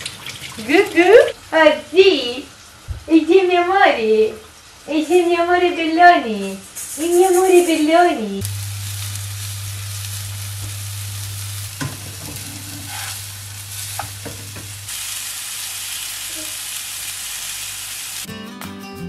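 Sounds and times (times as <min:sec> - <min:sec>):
patties sizzling in oil: 0:06.2 - 0:18.3
music: 0:18.3 - 0:19.0.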